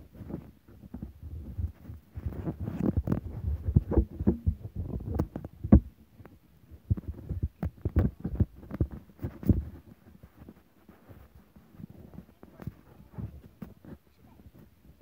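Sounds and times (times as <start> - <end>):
camera handling thuds and rubbing: 1.7 - 5.9.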